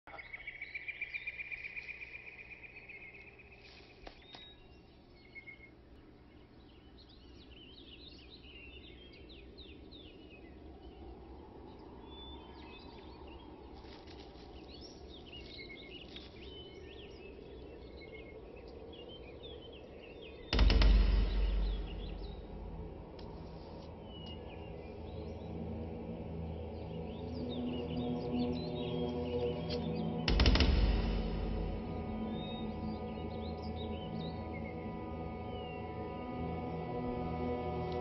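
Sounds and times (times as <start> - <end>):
birds chirping: 0.0 - 38.0
faint low hiss: 0.1 - 27.1.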